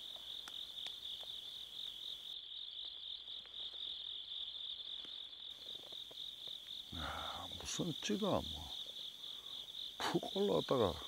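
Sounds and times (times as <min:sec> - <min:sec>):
faint ticks: 0:00.0 - 0:03.9
crickets chirping: 0:00.0 - 0:11.0.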